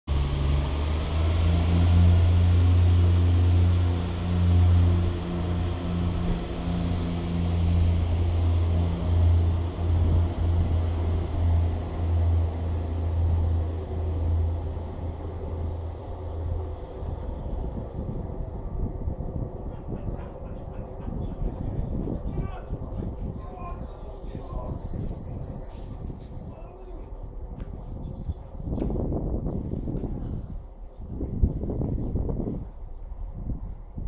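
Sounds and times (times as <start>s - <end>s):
diesel train engine idling: 0.1s - 22.1s.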